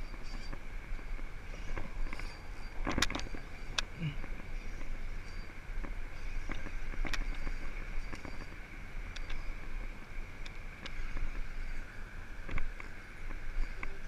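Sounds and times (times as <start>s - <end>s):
wind on microphone: 0.0s - 14.0s.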